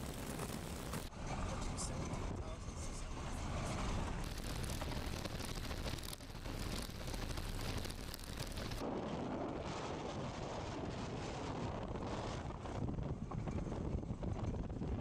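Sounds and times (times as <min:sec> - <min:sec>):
wind noise: 0:00.0 - 0:02.6, 0:03.2 - 0:15.0
vehicle rumbling over gravel: 0:04.2 - 0:08.8.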